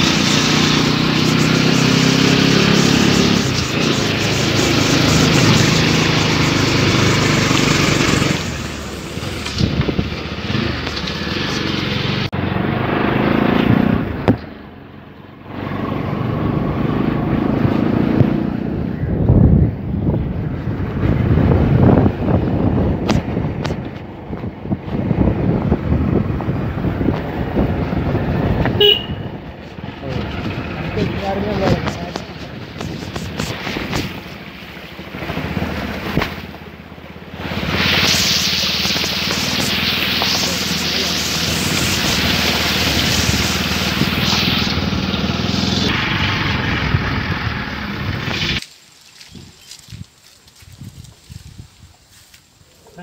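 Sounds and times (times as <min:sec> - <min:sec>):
motorbike engine: 0:00.0 - 0:19.2, 0:20.4 - 0:48.7
road noise: 0:00.0 - 0:53.0
wind buffeting microphone: 0:08.6 - 0:10.8, 0:17.2 - 0:36.6, 0:49.2 - 0:52.8
loud hiss: 0:37.4 - 0:49.2.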